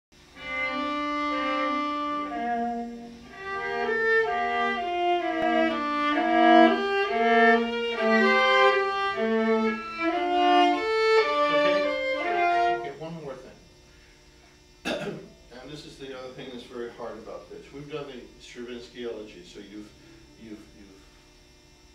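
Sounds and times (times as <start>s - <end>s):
bowed viola melody: 0.3s - 13.0s.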